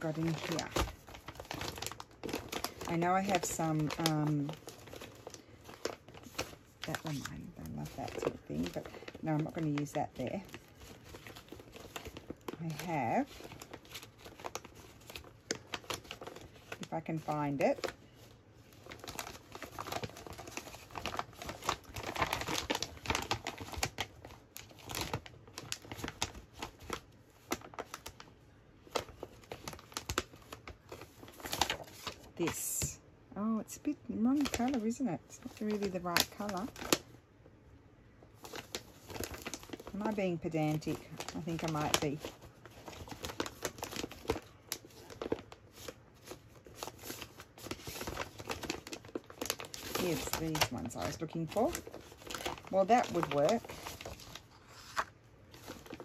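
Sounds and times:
papers rustling: 0:00.0 - 0:32.8, 0:38.4 - 0:56.0
plastic bag crinkling: 0:00.0 - 0:32.8, 0:33.8 - 0:37.2, 0:38.3 - 0:56.0.

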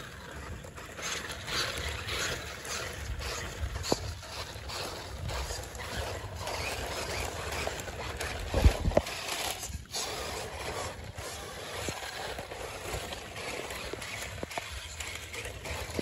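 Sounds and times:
toy truck electric motors: 0:00.0 - 0:16.0
tyres on soil: 0:00.0 - 0:16.0.

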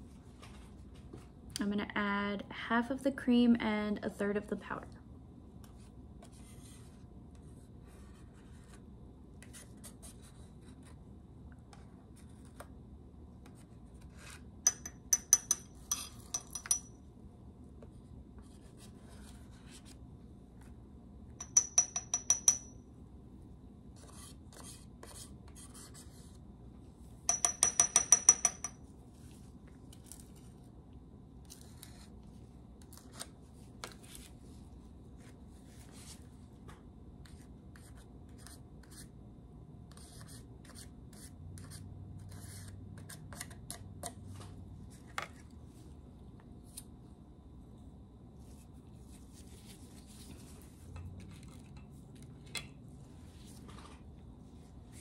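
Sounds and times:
metal spatula tapping ceramic mortar: 0:14.6 - 0:16.9, 0:21.4 - 0:22.8, 0:27.3 - 0:28.8.

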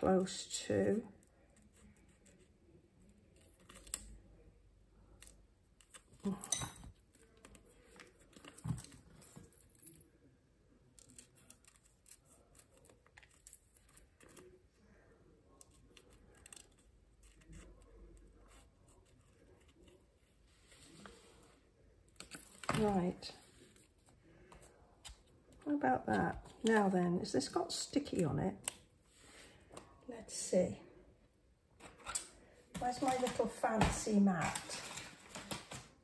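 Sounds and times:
handling sound: 0:31.8 - 0:36.0.

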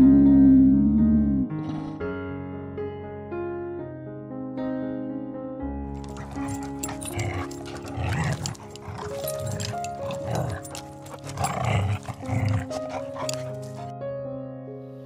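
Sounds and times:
background music: 0:05.2 - 0:15.0
dog barking: 0:06.1 - 0:13.9.

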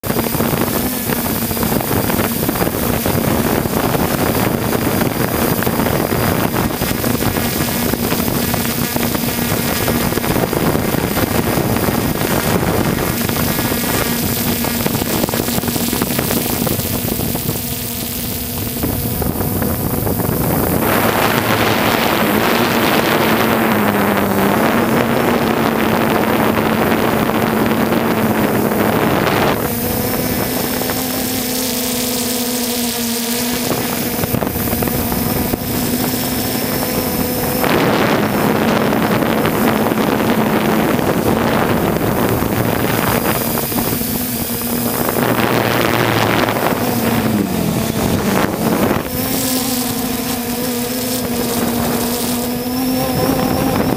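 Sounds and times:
drone propellers humming: 0:00.0 - 0:53.9
rush of air: 0:18.2 - 0:31.0.

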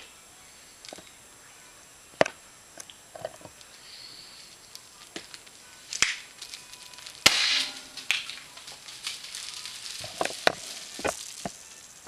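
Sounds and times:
rushing hiss of confetti: 0:03.6 - 0:12.0
confetti cannon pop: 0:05.9 - 0:06.3, 0:07.2 - 0:11.6.

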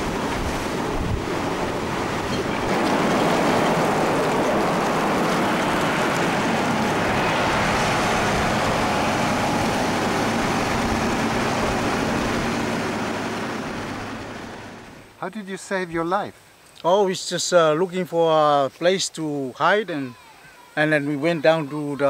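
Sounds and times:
diesel engine running: 0:00.0 - 0:15.2
rain: 0:00.0 - 0:15.2
wind: 0:00.0 - 0:22.0.

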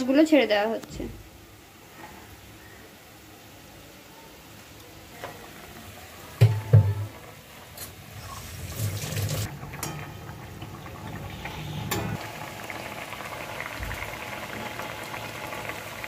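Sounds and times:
gravy bubbling and crackling: 0:09.4 - 0:16.0.

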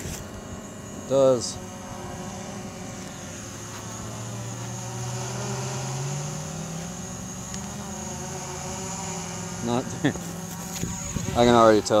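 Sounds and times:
drone propellers humming: 0:00.0 - 0:12.0.

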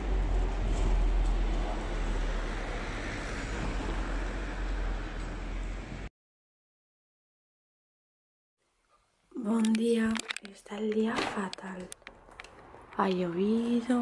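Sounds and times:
city traffic: 0:00.0 - 0:06.1, 0:10.1 - 0:14.0
scooter road noise: 0:00.0 - 0:06.1.

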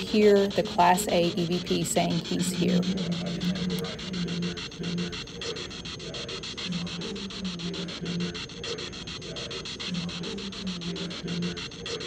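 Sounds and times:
low hum-like tones: 0:00.0 - 0:12.0
scratchy crackle: 0:00.0 - 0:12.0.

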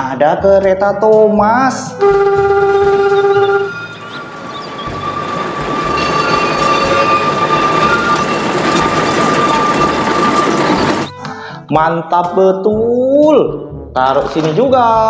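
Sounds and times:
steady high-pitched whine: 0:02.0 - 0:11.1
locomotive rolling on rails: 0:02.0 - 0:11.2.

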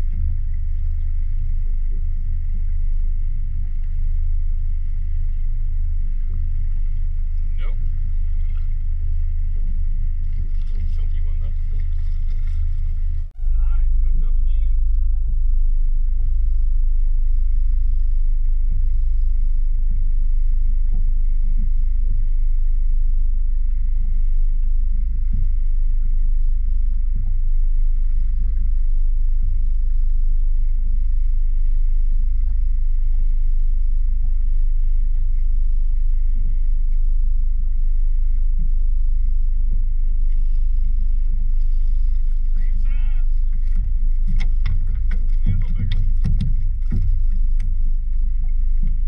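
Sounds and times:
water slapping boat hull: 0:00.0 - 0:13.3, 0:41.6 - 0:49.0
faint high whine: 0:00.0 - 0:49.0
wind rumble on microphone: 0:00.0 - 0:49.0.

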